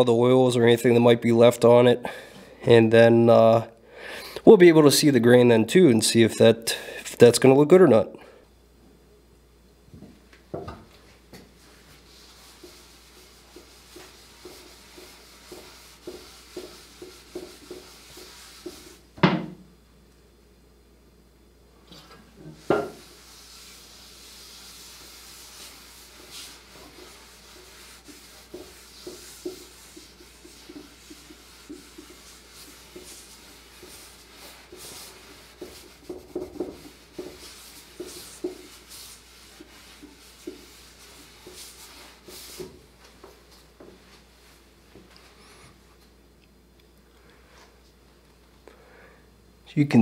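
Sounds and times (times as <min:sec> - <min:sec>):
cloth rubbing on wood: 0:11.1 - 0:19.1, 0:22.5 - 0:45.6.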